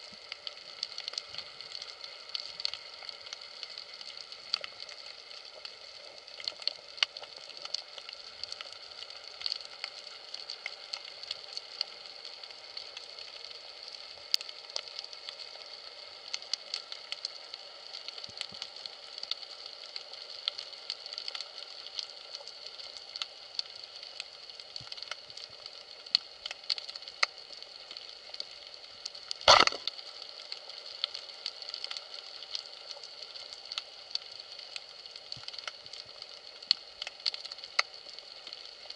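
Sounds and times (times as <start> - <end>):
sharp clicks crackling: 29.5 - 30.0.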